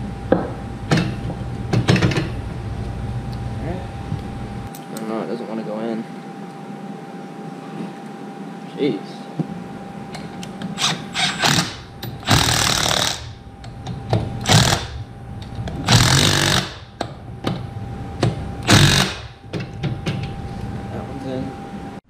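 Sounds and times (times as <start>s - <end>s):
impact wrench hammering: 10.8s - 13.4s, 14.0s - 15.0s, 15.8s - 17.6s, 18.2s - 20.2s.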